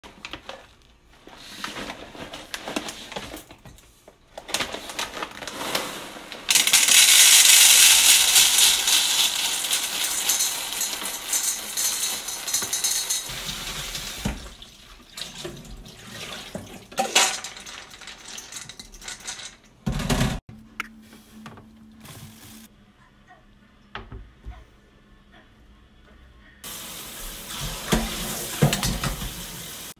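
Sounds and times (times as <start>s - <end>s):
plastic bag rustling: 0.1s - 14.3s, 21.1s - 22.7s
beans pouring into metal bowl: 5.3s - 14.2s
beans clinking: 5.3s - 14.3s, 16.9s - 19.8s.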